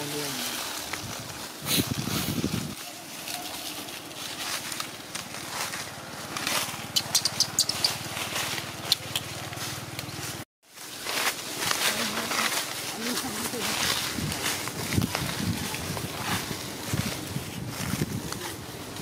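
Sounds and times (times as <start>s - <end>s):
small engine pulsing hum: 3.9s - 10.4s.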